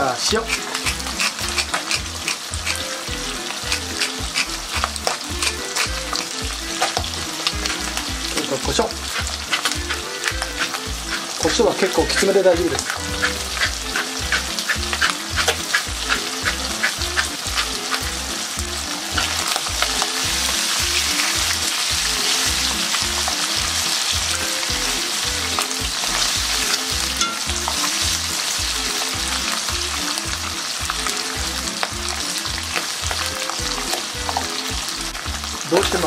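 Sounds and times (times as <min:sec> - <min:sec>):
chicken skin sizzling in a pan: 0:00.0 - 0:36.0
utensil clicking against pan: 0:00.3 - 0:02.9, 0:03.5 - 0:07.8, 0:08.4 - 0:18.2.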